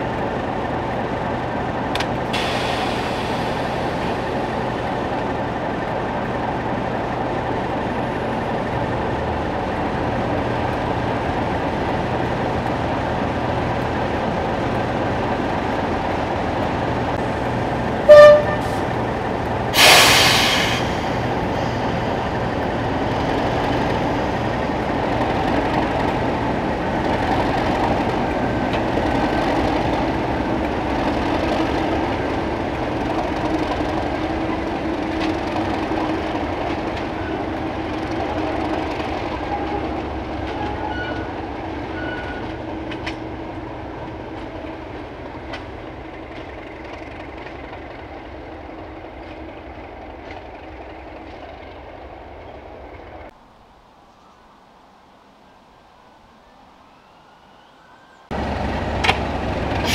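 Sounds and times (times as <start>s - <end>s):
diesel locomotive engine running: 0.0s - 53.4s, 57.8s - 59.9s
train wheels clicking: 9.7s - 52.0s.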